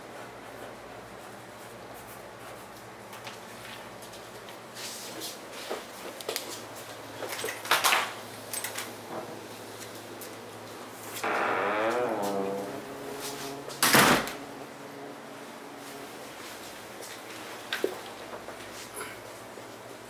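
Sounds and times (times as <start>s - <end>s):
steady low hum: 8.2s - 20.0s.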